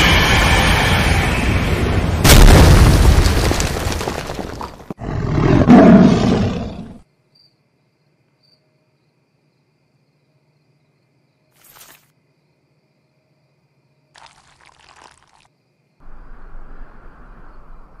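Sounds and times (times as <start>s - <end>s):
deep boom: 2.1s - 3.8s
cartoon tiger roar: 5.0s - 7.0s.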